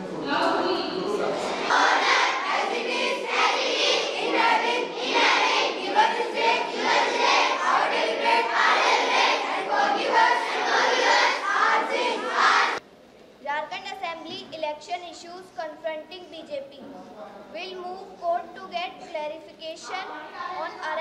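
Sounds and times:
children singing in unison: 0:01.5 - 0:12.8.

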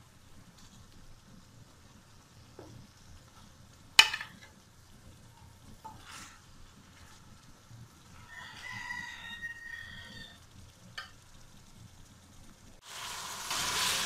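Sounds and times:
chicken sizzling in a pan: 0:00.0 - 0:14.0
stirring in a pan: 0:00.1 - 0:14.0
rooster crowing: 0:08.2 - 0:10.4.

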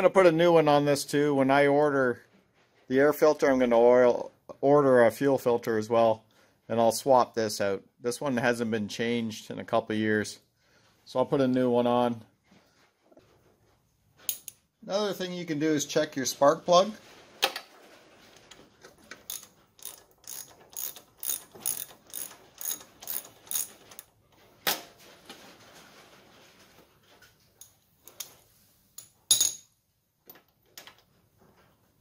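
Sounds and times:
socket ratchet clicking: 0:19.3 - 0:24.0.

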